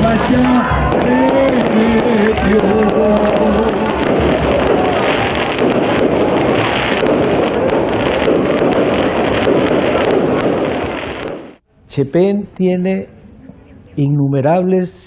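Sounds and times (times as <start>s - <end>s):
sung serenade with guitar and trumpet: 0.0s - 6.7s
fireworks crackling and popping: 0.0s - 11.7s.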